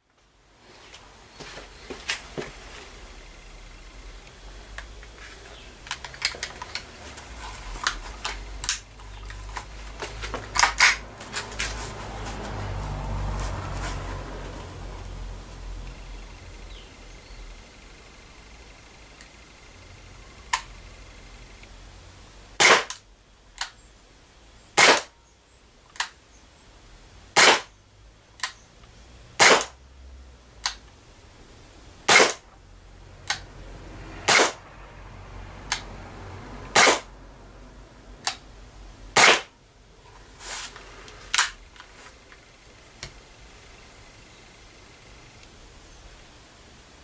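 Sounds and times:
air pistol shots: 0:22.6 - 0:23.0, 0:24.8 - 0:25.1, 0:27.4 - 0:27.7, 0:29.4 - 0:29.8, 0:32.1 - 0:32.4, 0:34.3 - 0:34.6, 0:36.7 - 0:37.1, 0:39.2 - 0:39.5.

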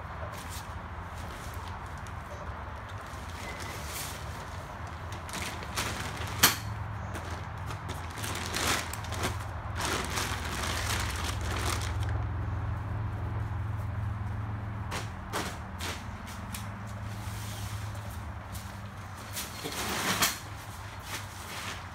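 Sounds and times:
plastic tarp rustling: 0:03.0 - 0:12.3, 0:19.1 - 0:21.9.

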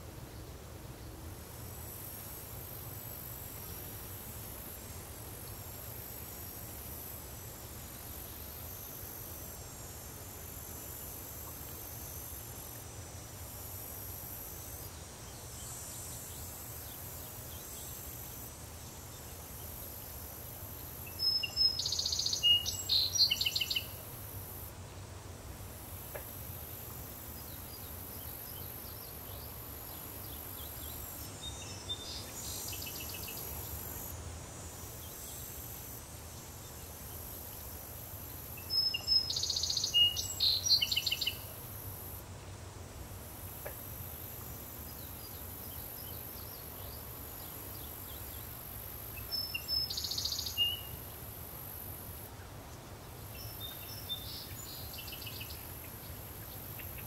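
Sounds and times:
crickets and cicadas droning: 0:00.0 - 0:57.0
bird song: 0:21.1 - 0:24.0, 0:27.4 - 0:33.7, 0:38.6 - 0:41.5, 0:49.2 - 0:51.0, 0:53.3 - 0:57.0.

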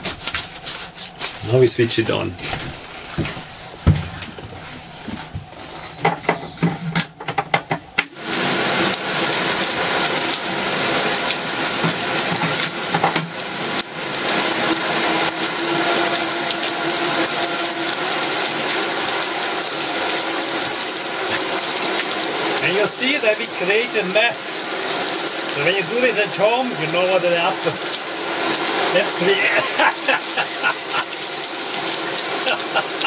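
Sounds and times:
fan running steadily: 0:00.0 - 0:33.0
knocks and rattles: 0:02.4 - 0:08.0.

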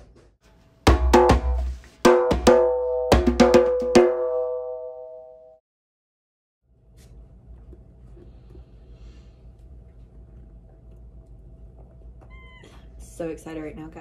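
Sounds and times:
drum hits: 0:00.9 - 0:04.7.

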